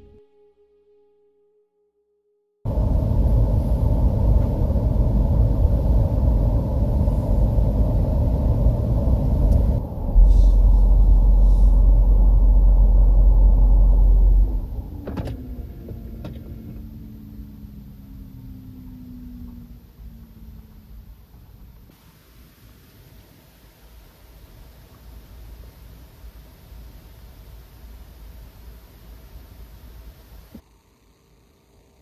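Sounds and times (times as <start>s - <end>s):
climate-control blower running: 2.7s - 17.4s
fan winding down: 2.7s - 21.1s
deep rumble: 2.7s - 21.9s
quiet cabin hum: 2.7s - 32.0s.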